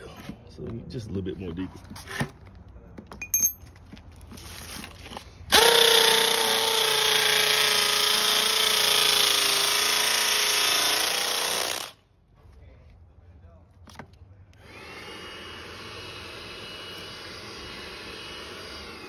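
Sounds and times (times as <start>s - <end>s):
hammer drill boring into concrete: 5.5s - 12.0s, 14.6s - 19.0s.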